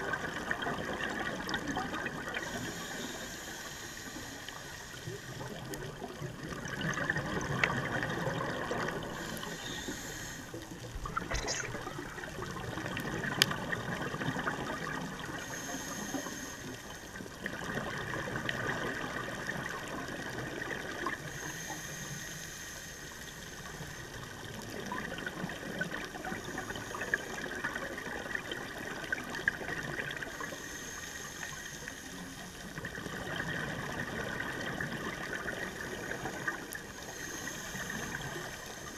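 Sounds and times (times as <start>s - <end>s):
regulator inhale hiss: 2.4s - 5.7s, 8.9s - 10.8s, 15.2s - 17.3s, 21.0s - 24.0s, 26.4s - 27.5s, 30.2s - 32.7s, 35.7s - 38.9s
exhale bubbles rushing: 11.0s - 12.8s.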